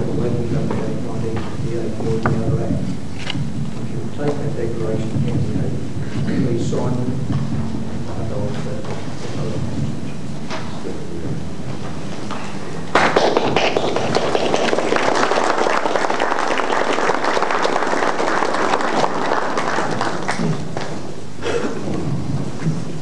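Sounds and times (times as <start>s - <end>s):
audience applauding: 12.9s - 21.2s.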